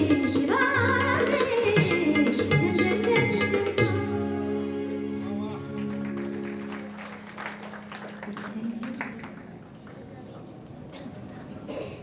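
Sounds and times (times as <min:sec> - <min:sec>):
audience applauding: 0:05.7 - 0:10.1.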